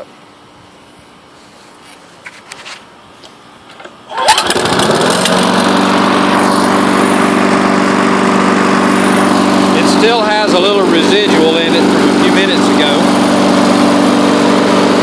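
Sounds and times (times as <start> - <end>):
lawn mower engine starting: 3.7 - 15.0.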